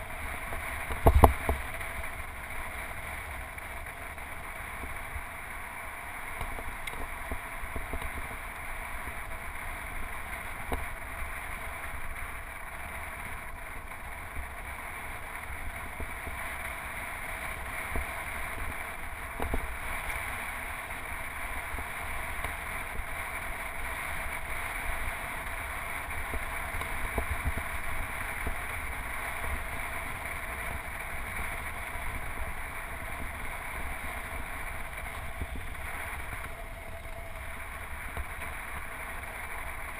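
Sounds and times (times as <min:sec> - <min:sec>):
tyres humming on pavement: 0:00.0 - 0:39.9
wind buffeting camera: 0:00.8 - 0:01.9.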